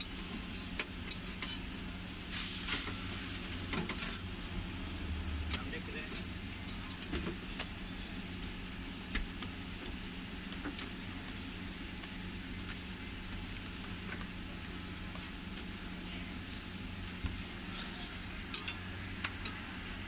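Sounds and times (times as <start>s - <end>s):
flatbread sizzling on a griddle: 0.0s - 20.0s
metal spatula clicking on griddle: 18.5s - 19.6s.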